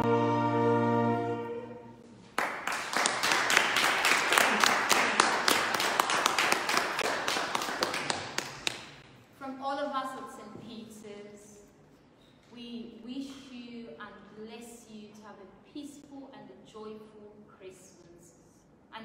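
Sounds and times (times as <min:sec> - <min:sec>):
congregation applauding: 0:02.3 - 0:09.0.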